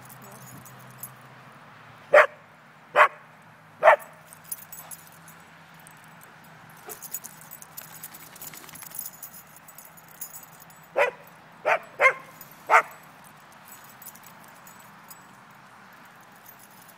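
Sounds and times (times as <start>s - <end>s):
dog barking: 2.1s - 2.4s, 3.0s - 3.2s, 3.8s - 4.2s, 11.0s - 13.0s.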